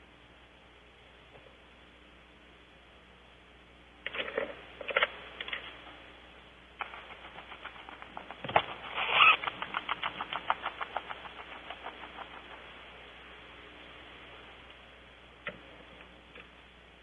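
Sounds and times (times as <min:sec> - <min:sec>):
rapid sharp clicks: 0:06.8 - 0:13.4
scratchy burst: 0:06.8 - 0:14.4.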